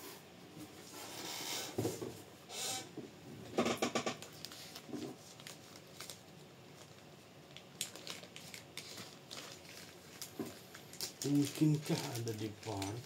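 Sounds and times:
plastic bags crinkling: 0:04.2 - 0:13.0.

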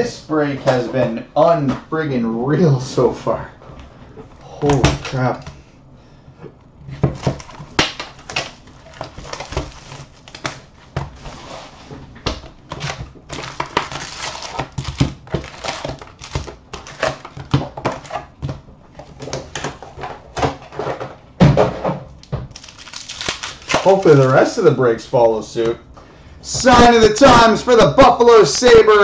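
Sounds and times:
cardboard and foil taps and rustles: 0:07.0 - 0:11.5, 0:12.2 - 0:24.6.

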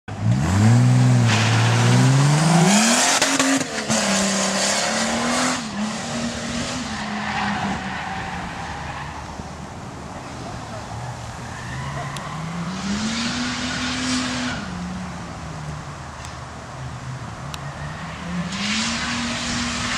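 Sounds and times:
car engine accelerating: 0:00.1 - 0:07.8.

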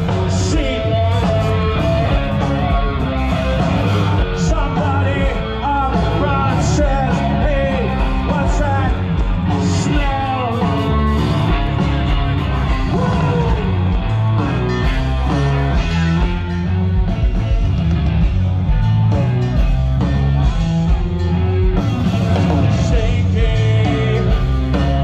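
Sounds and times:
person singing: 0:00.0 - 0:14.6, 0:22.5 - 0:25.0
live rock band playing: 0:00.0 - 0:25.0.

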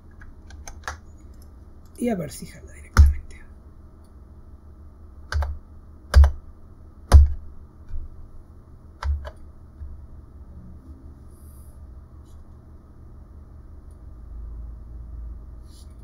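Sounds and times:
keyboard keystrokes: 0:00.0 - 0:01.4, 0:05.3 - 0:06.4, 0:09.0 - 0:09.4
faint steady hum: 0:00.0 - 0:16.0.

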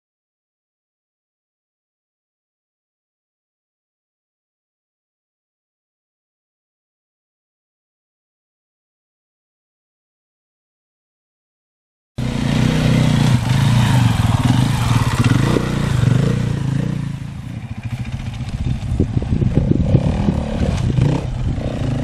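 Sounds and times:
motorcycle engine revving: 0:12.2 - 0:22.0.

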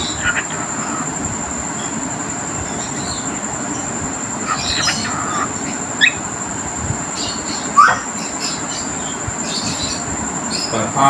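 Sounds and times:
parrot chirps and squawks: 0:00.0 - 0:01.2, 0:04.4 - 0:06.2, 0:07.2 - 0:08.9
steady hiss: 0:00.0 - 0:11.0.

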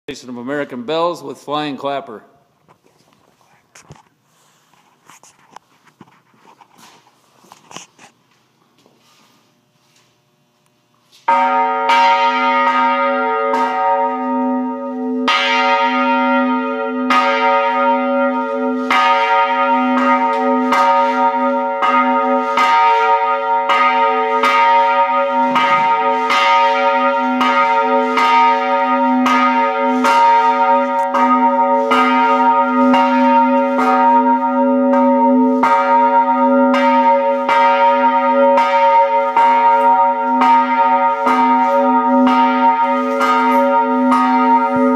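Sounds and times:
bell ringing: 0:11.3 - 0:44.9.

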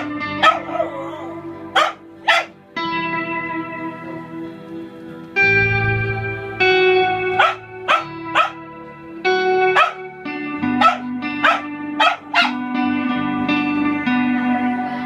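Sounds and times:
electric guitar chords: 0:00.0 - 0:15.0
small dog yapping: 0:09.8 - 0:10.0, 0:10.8 - 0:12.6.

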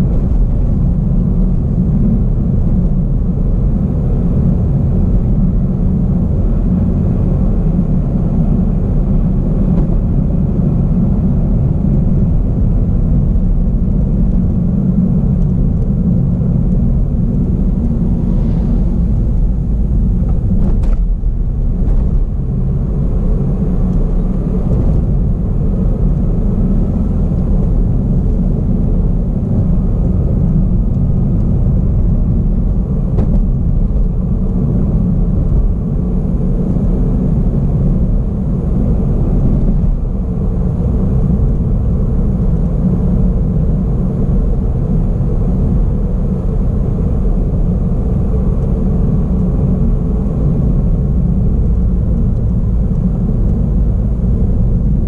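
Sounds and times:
car interior road rumble: 0:00.0 - 0:55.0.

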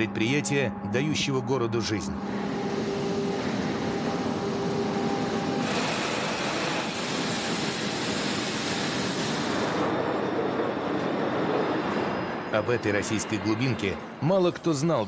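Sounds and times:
steam hissing: 0:05.5 - 0:10.0.

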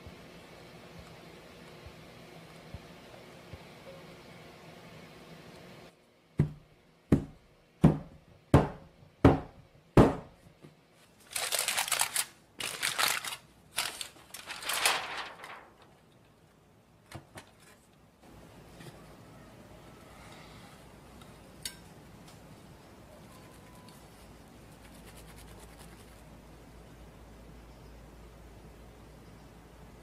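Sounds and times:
aluminium foil crinkling: 0:11.0 - 0:16.2.

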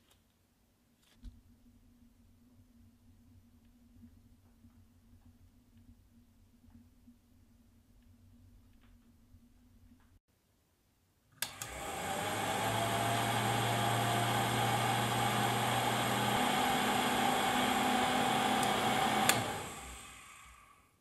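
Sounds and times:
vacuum cleaner motor whining: 0:11.4 - 0:20.8.

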